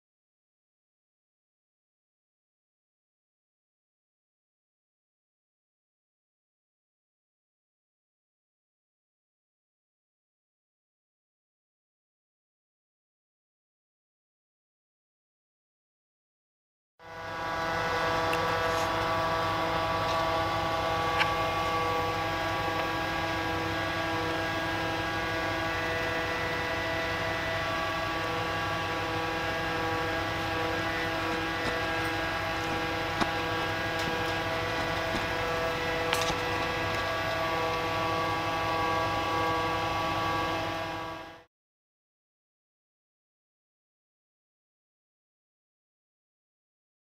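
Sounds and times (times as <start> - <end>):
ship machinery drone: 17.0 - 41.5.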